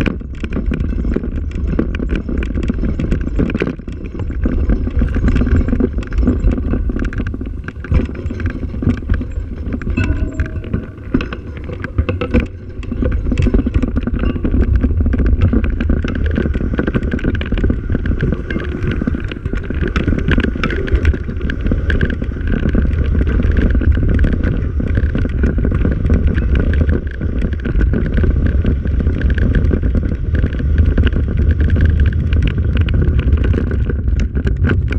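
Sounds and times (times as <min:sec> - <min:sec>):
rattles and knocks from bumps: 0:00.0 - 0:34.9
vehicle rumbling over dirt track: 0:00.0 - 0:34.9
wind on microphone: 0:00.0 - 0:34.9
thin steady whine: 0:06.0 - 0:20.9.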